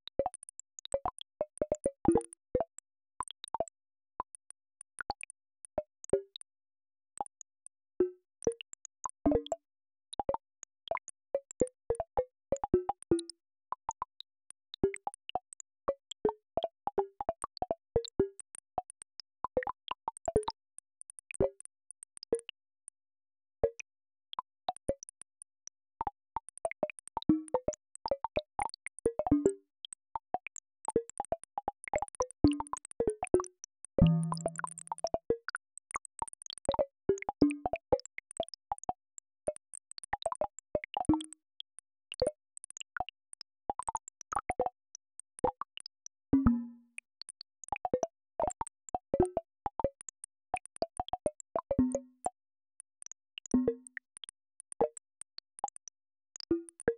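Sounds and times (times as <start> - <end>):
synthesized plucked blips: 34.0 - 34.9, 46.4 - 46.8.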